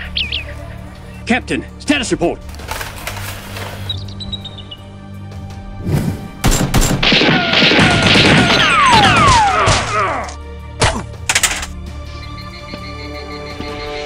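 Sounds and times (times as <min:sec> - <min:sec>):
background music: 0:00.0 - 0:14.0
gunshots: 0:06.4 - 0:10.0.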